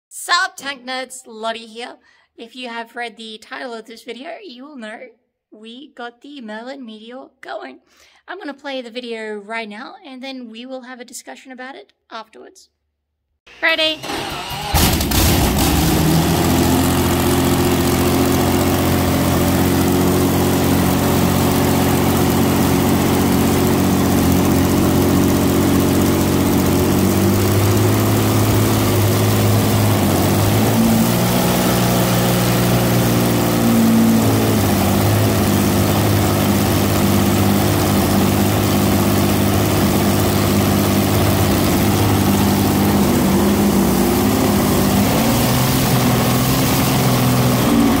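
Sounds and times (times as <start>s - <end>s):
petrol engine running: 13.5s - 48.0s.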